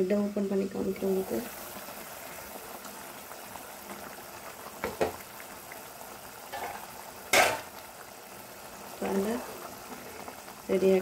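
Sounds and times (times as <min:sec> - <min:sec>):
gravy boiling and bubbling: 0:00.0 - 0:11.0.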